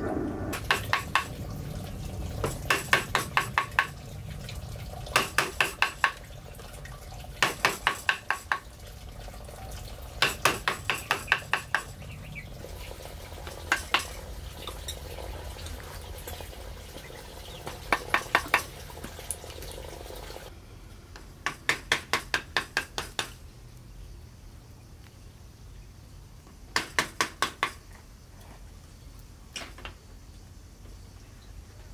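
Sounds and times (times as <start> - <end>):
low steady rumble: 0.0 - 5.2.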